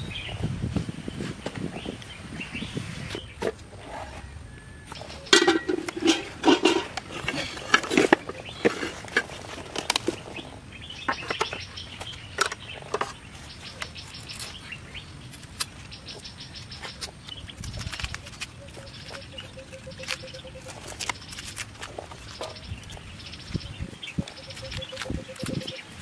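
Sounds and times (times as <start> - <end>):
pots and utensils clattering: 5.0 - 10.2.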